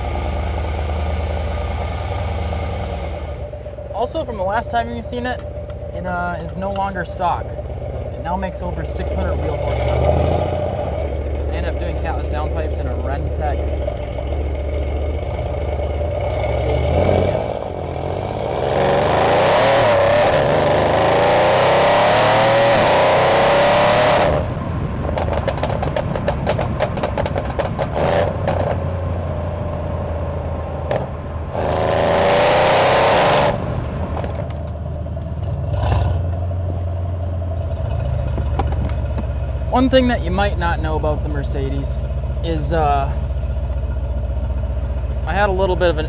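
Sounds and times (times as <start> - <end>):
car engine idling and revving: 0.0 - 46.0
exhaust crackles and pops: 22.2 - 29.0, 30.8 - 31.8, 33.4 - 42.4.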